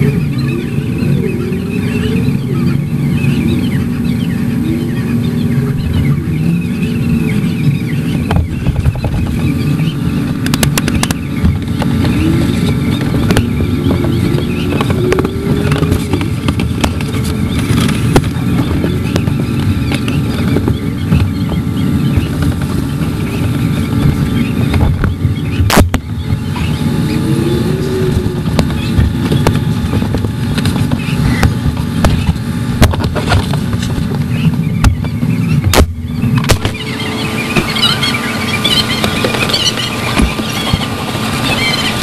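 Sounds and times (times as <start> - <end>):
vehicle engines running: 0.0 - 42.0.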